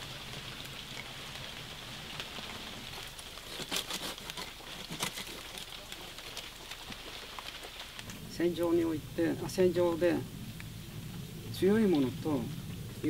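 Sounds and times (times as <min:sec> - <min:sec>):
twigs crackling and snapping: 0:00.0 - 0:12.5
steady high hiss: 0:00.0 - 0:13.0
pruning saw cutting: 0:03.5 - 0:05.4.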